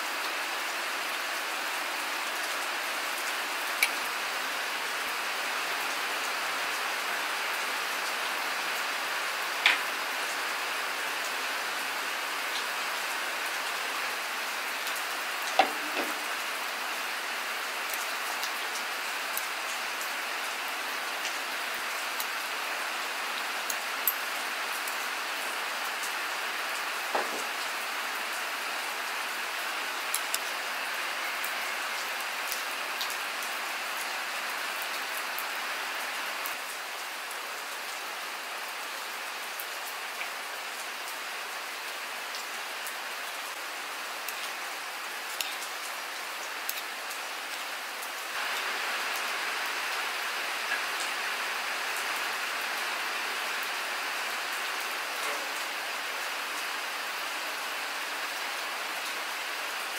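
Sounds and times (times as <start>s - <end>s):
steady rain on hard surfaces: 0.0s - 59.9s.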